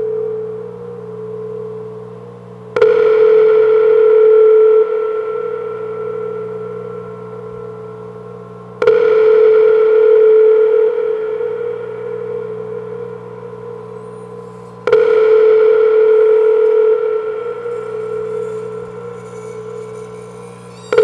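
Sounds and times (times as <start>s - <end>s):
struck bell-like metallic tones: 8.9s - 21.0s
steady low drone: 10.7s - 21.0s.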